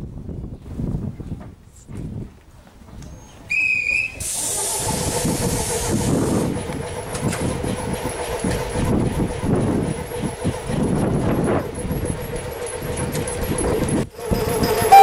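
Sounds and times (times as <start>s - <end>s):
loud hiss of air: 3.7s - 6.5s
train rumble and hum: 3.7s - 15.0s
high tone: 14.4s - 15.0s.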